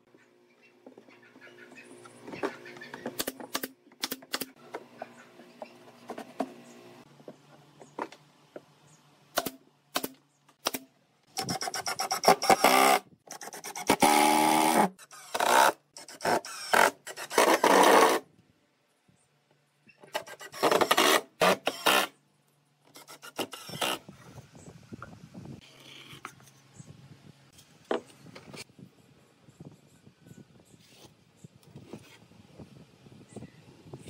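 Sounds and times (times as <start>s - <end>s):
nail gun firing: 3.2s - 4.5s, 9.3s - 18.2s, 20.2s - 22.1s
impact driver driving screws: 20.1s - 22.1s.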